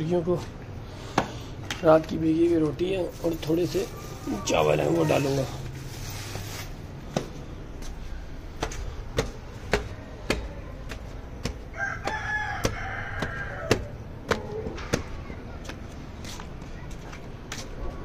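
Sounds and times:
regular short knocks: 8.6 - 15.8
rooster crowing: 11.7 - 13.9.

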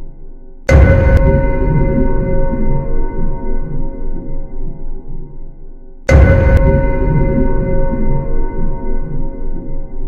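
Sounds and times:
loud bass hit: 0.7 - 5.2, 6.0 - 10.0.

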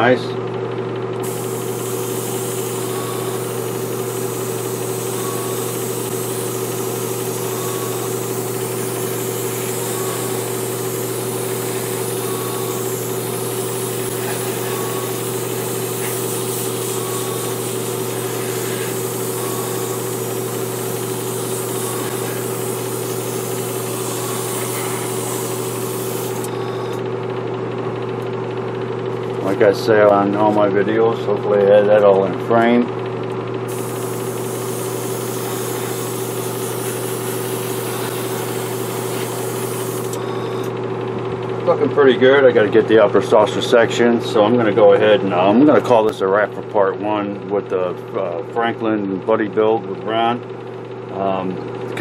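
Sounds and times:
air compressor humming: 0.0 - 52.0
airbrush spraying hiss: 1.2 - 27.0, 33.7 - 40.7.

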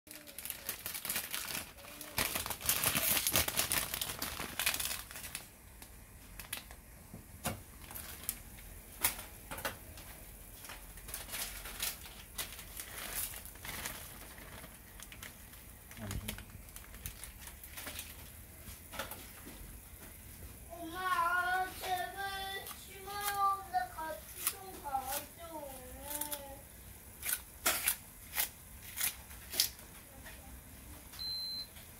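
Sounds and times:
broth boiling and popping: 0.1 - 20.7.

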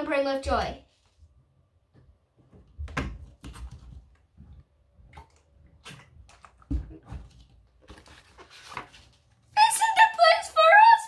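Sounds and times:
book pages rustling and turning: 2.4 - 4.4, 6.4 - 9.6
soft knocks and thumps: 6.5 - 8.0.

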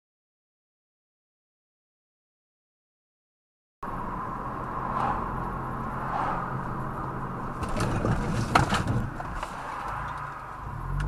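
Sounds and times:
car road and engine noise: 3.8 - 11.0.

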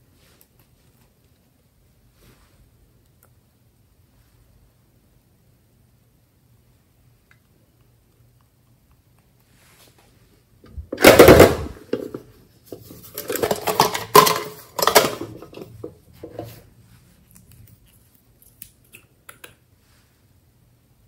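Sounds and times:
containers clattering: 10.9 - 16.6.

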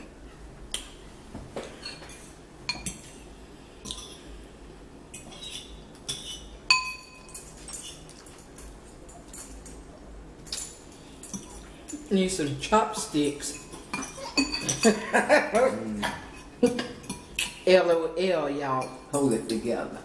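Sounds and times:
metal forks clinking on ceramic bowls: 1.8 - 3.2, 5.1 - 9.8, 10.4 - 18.1.

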